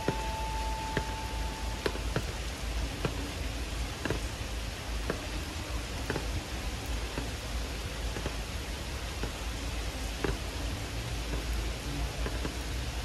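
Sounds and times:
faint thin steady tone: 0:00.0 - 0:03.3
heavy rain on water and paving: 0:00.0 - 0:13.0
large raindrops tapping: 0:00.0 - 0:13.0.

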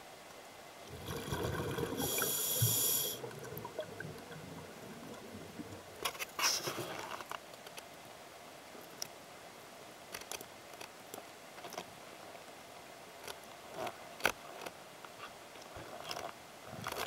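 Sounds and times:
faint hiss: 0:00.0 - 0:17.0.

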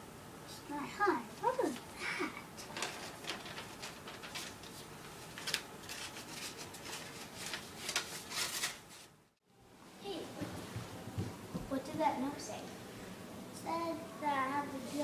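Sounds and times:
paper rustling and crackling: 0:02.6 - 0:09.1.

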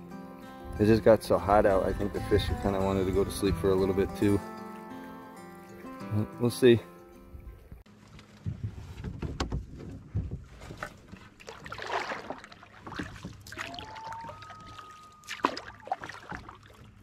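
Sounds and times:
paddle strokes with water swishing: 0:07.9 - 0:17.0
wood knocking against hull: 0:08.4 - 0:11.7, 0:12.8 - 0:14.8, 0:15.5 - 0:17.0
thin whistle-like tone: 0:13.7 - 0:15.6.

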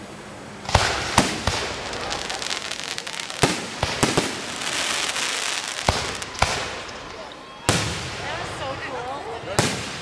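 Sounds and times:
fireworks crackling: 0:00.0 - 0:10.0
firework shells bursting with bangs: 0:00.6 - 0:08.3.

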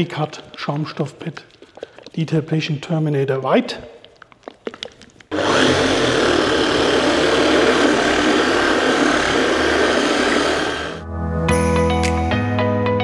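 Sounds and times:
polisher running: 0:05.3 - 0:11.0.

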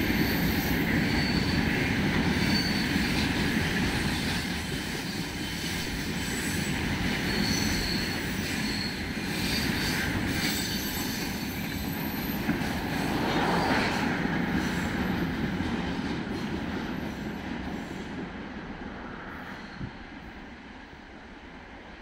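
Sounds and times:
freight train rumbling on rails: 0:00.0 - 0:22.0
high wheel squeal: 0:00.1 - 0:03.1, 0:05.4 - 0:15.2.

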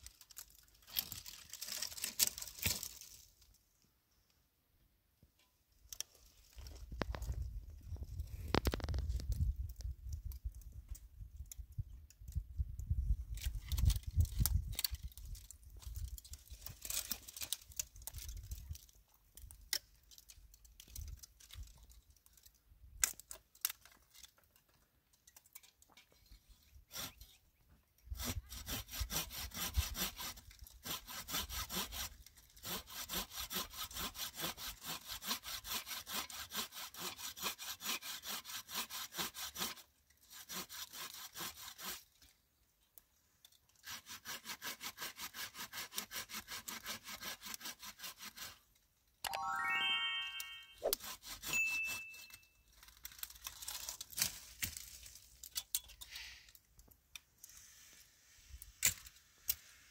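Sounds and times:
hand saw cutting wood: 0:26.8 - 0:27.4, 0:28.1 - 0:42.2, 0:43.8 - 0:48.7, 0:50.8 - 0:52.3.

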